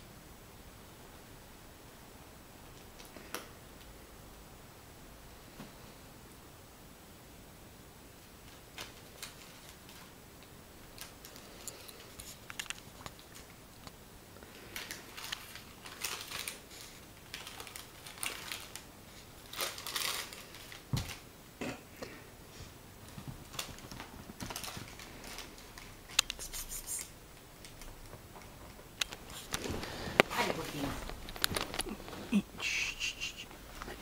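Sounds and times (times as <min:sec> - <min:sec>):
kitten claws scratching fabric: 0:26.1 - 0:27.2.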